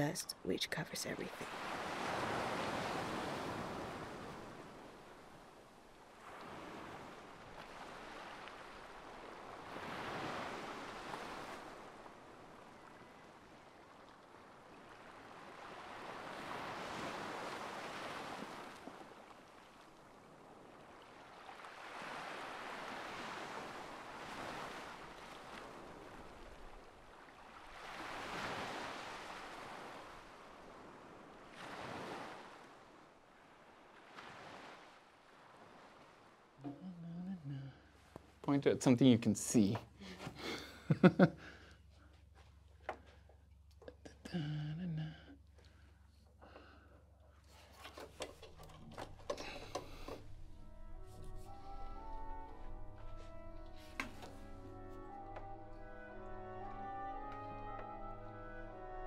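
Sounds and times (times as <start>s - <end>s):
sea waves washing onto shore: 1.0s - 36.6s.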